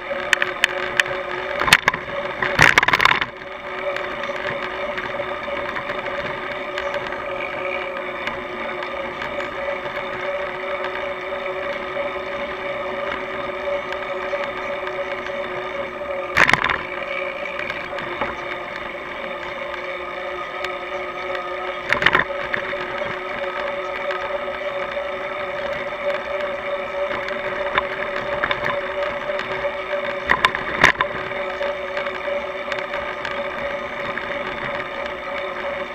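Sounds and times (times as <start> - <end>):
bicycle rolling on road: 0.0 - 35.9
steady hum: 0.0 - 35.9.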